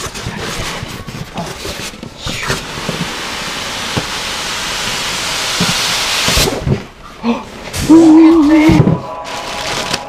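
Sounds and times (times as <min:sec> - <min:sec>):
foam scraping against cardboard: 0:00.0 - 0:03.3.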